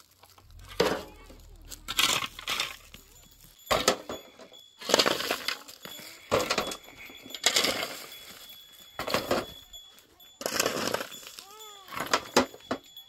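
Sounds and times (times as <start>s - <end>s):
masonry crashing down: 0.2s - 8.1s, 10.4s - 11.4s.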